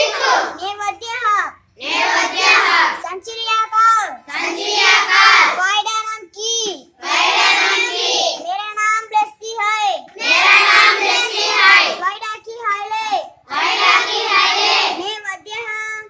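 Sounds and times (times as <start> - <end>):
children singing together: 0.0 - 0.6, 1.8 - 3.0, 4.3 - 5.6, 7.0 - 8.4, 10.2 - 12.0, 13.5 - 15.0.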